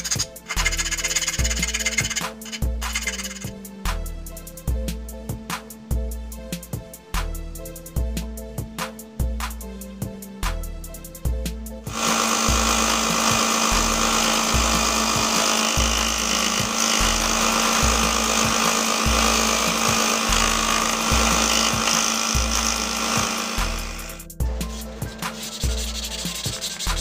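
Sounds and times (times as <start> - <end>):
belt sander sanding wood: 0.0 - 3.5, 11.9 - 27.0
background music with bass beat: 0.0 - 12.0, 19.0 - 27.0.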